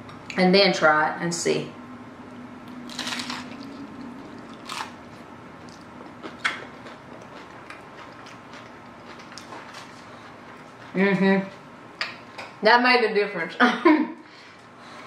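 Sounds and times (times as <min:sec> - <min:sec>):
chewing: 0:02.9 - 0:05.0, 0:05.6 - 0:11.0
crunching taco shell: 0:02.9 - 0:10.0.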